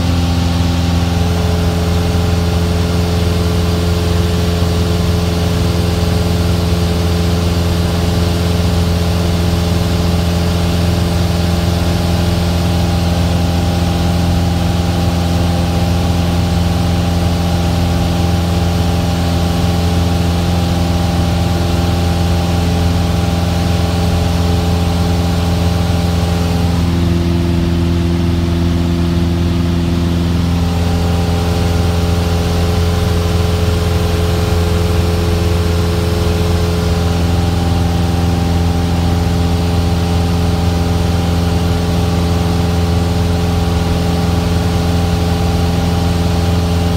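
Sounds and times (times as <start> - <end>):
airplane engine droning in cabin: 0.0 - 46.9.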